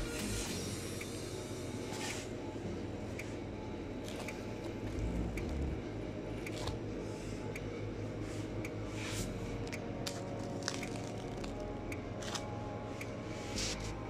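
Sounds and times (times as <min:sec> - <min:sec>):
steady low hum: 0:00.0 - 0:14.0
faint ticks: 0:04.1 - 0:05.8.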